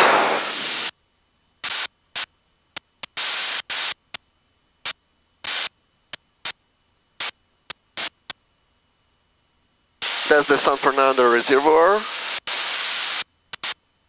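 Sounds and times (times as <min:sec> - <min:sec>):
short bursts of hiss: 0:12.0 - 0:13.8.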